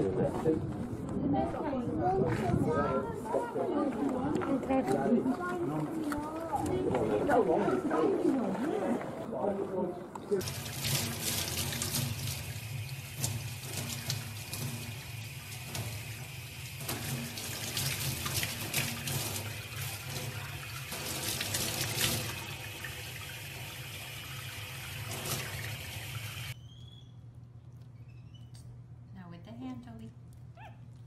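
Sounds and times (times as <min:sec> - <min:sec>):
tap water running into a sink: 0:10.4 - 0:26.6.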